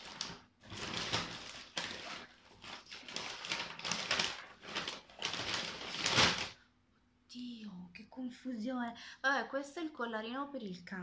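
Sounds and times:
rustling and crinkling packaging: 0.0 - 6.6.

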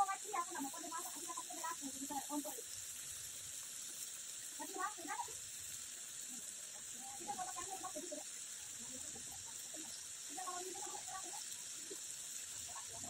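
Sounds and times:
faint background sounds: 0.0 - 13.0
food hissing in a wok: 0.0 - 13.0.

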